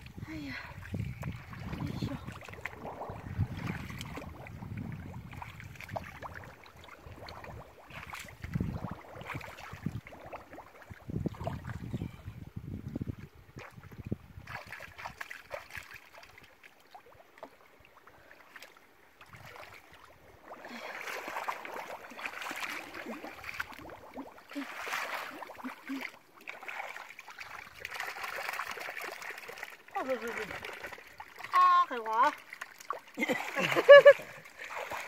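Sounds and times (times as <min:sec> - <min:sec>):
muddy water sloshing and splashing: 0:00.0 - 0:35.0
footsteps wading in mud: 0:18.4 - 0:31.4.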